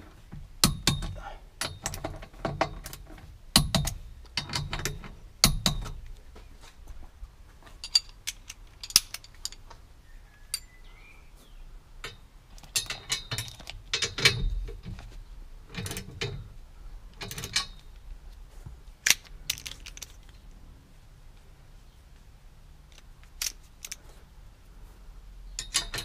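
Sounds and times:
metal tools clinking: 7.7s - 9.6s, 12.0s - 14.9s, 17.2s - 17.9s, 25.5s - 26.0s.

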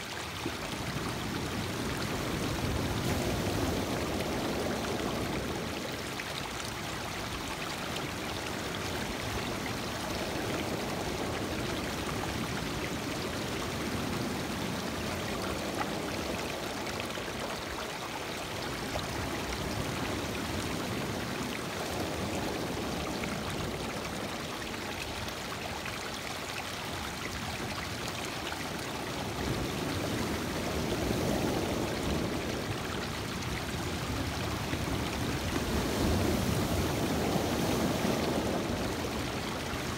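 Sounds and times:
water washing over stones: 0.0s - 39.9s.

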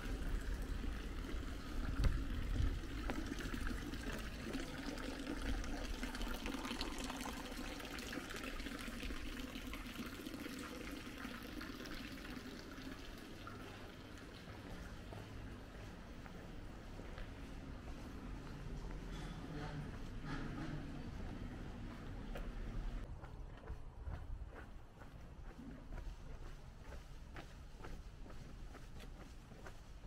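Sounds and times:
water running and trickling: 0.0s - 15.6s.

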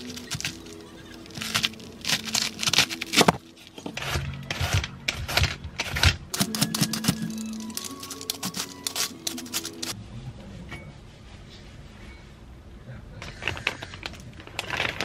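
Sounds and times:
background music: 0.0s - 10.0s
cleaver scraping cabbage: 0.0s - 10.0s
peeler shaving cabbage: 0.0s - 10.0s.

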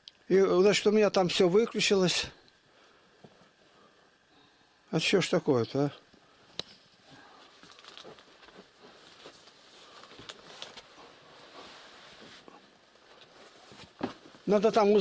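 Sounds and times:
camera handling rustling: 7.5s - 11.1s.

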